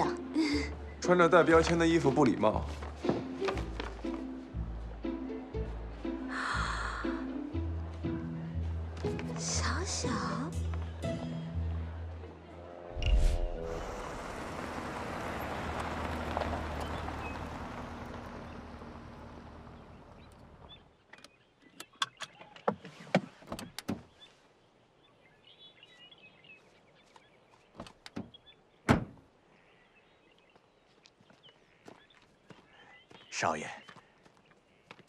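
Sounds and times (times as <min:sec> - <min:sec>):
car driving past: 0:12.9 - 0:20.8
car door thunk: 0:28.1 - 0:29.2.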